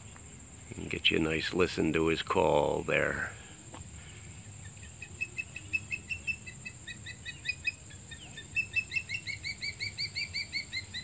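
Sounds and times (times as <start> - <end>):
osprey whistled chirps: 4.4 - 11.0.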